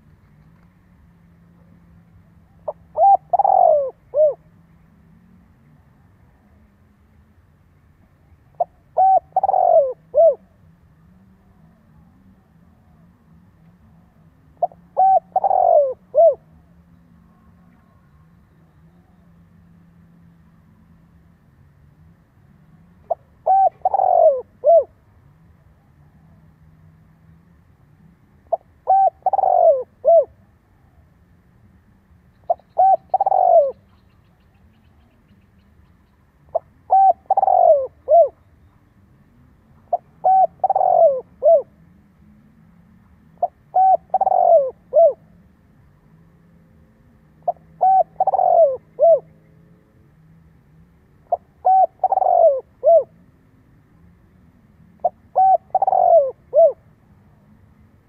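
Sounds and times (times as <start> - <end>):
dove cooing: 1.6 - 4.6, 8.4 - 10.7, 14.0 - 18.3, 23.0 - 25.0, 28.4 - 30.5, 32.5 - 35.4, 36.4 - 38.5, 39.6 - 42.5, 43.2 - 45.4, 47.0 - 49.4, 51.2 - 53.2, 54.4 - 57.0.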